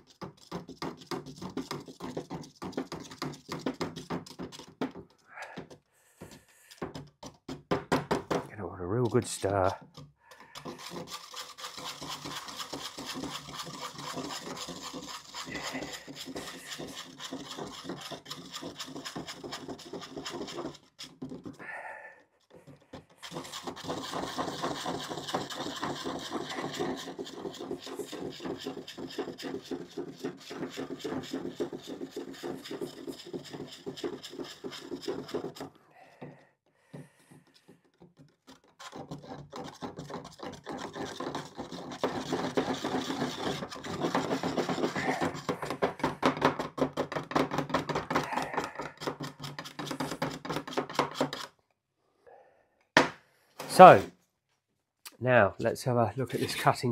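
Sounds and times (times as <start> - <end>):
stirrer scraping inside paint tin: 0.0 - 4.9, 8.5 - 21.6, 22.5 - 35.7, 37.5 - 51.6.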